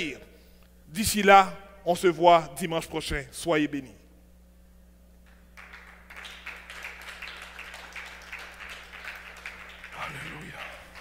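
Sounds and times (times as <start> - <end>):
electrical hum: 0.0 - 11.0
faint applause: 5.6 - 11.0.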